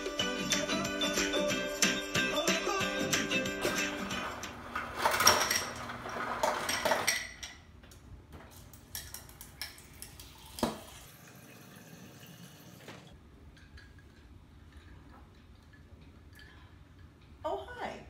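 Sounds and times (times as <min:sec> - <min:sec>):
ice clattering into glass: 0:04.8 - 0:07.6.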